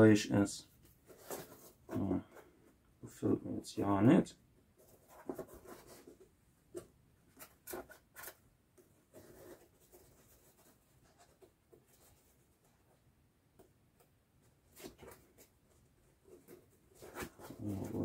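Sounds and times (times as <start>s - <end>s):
soft rustle: 0.6s - 2.8s.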